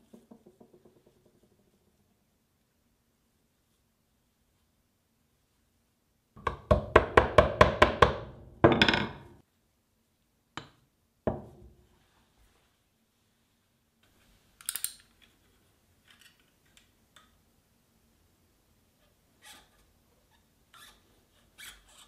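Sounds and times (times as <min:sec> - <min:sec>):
hammer knocking: 0:06.4 - 0:09.3.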